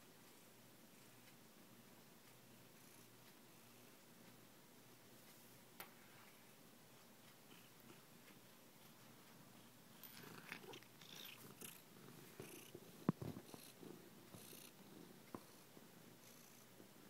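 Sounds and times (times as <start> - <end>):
cat purring: 6.9 - 17.0.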